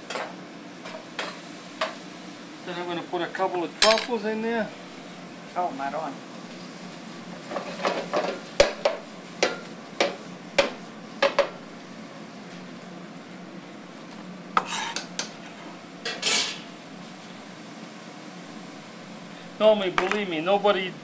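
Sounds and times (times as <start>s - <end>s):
metal pans and utensils clattering: 7.5s - 11.5s, 14.6s - 15.4s, 16.0s - 16.6s.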